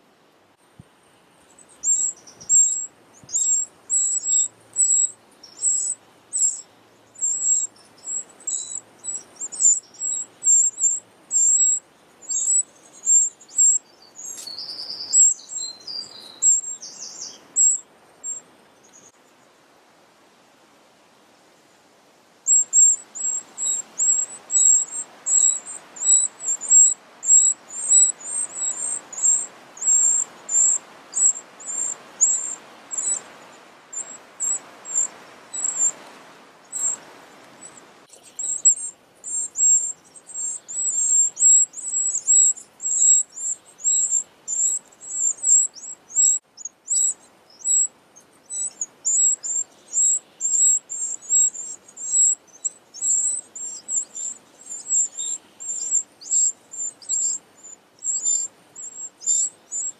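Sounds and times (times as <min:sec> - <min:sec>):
nestlings cheeping: 0:01.6 - 0:18.4, 0:22.5 - 0:33.3, 0:33.9 - 0:36.0, 0:36.7 - 0:37.0, 0:37.6 - 0:47.9.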